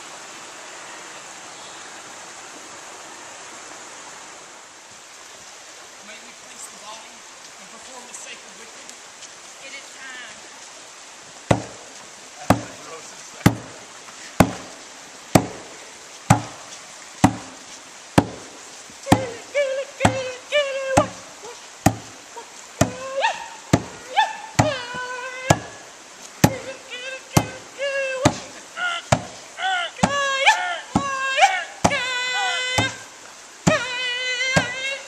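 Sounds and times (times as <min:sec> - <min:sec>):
slow drum beat: 0:11.5 - 0:11.9, 0:13.5 - 0:13.8, 0:14.4 - 0:17.6, 0:19.1 - 0:19.4, 0:26.4 - 0:26.7
high voices whooping calls: 0:19.1 - 0:35.0.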